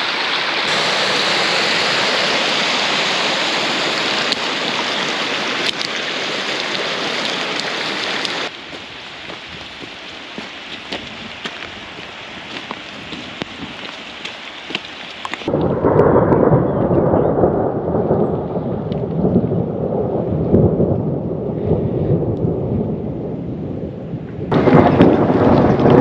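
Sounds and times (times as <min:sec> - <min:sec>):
heavy rain rushing: 0:00.0 - 0:26.0
raindrops ticking: 0:03.6 - 0:15.8.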